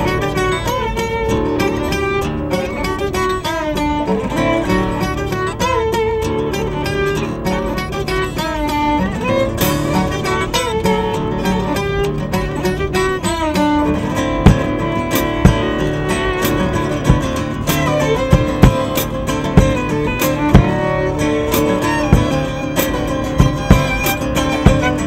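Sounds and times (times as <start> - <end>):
strummed acoustic guitar: 0.0 - 25.0
violin with vibrato: 0.0 - 25.0
sharp low thumps: 14.4 - 25.0.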